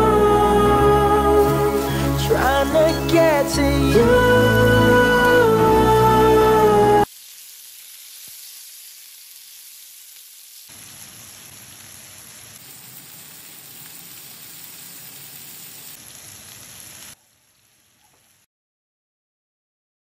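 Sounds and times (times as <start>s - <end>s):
chicken sizzling in oil: 7.0s - 18.5s.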